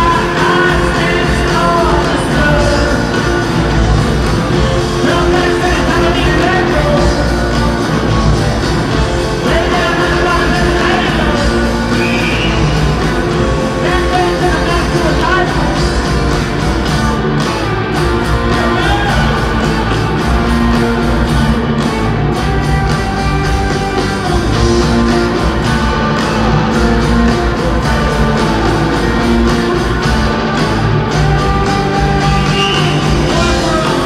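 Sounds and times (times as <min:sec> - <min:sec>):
lead singer singing: 0:00.0 - 0:16.3, 0:23.8 - 0:34.0
live rock band: 0:00.0 - 0:34.0.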